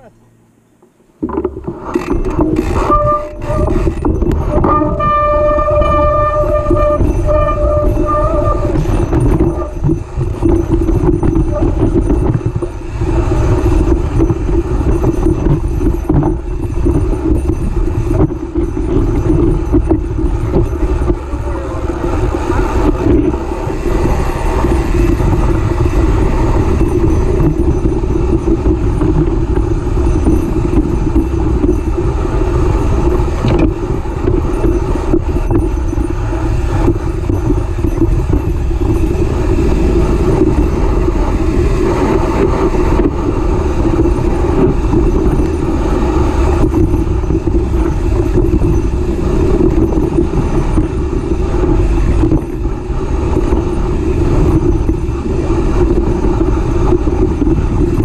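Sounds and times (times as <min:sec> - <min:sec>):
buzzing drone: 0:00.0 - 0:58.0
bike tyre and frame rattling: 0:01.2 - 0:58.0.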